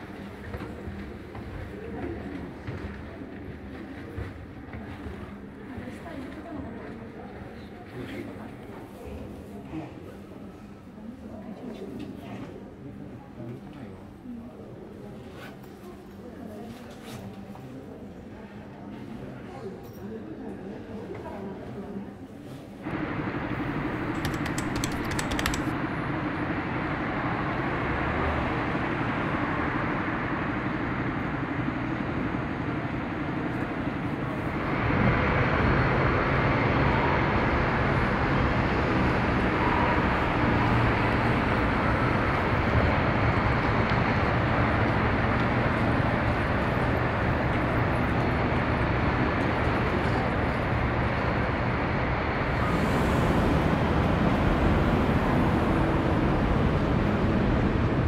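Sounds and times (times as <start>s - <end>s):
road traffic: 34.0s - 58.0s.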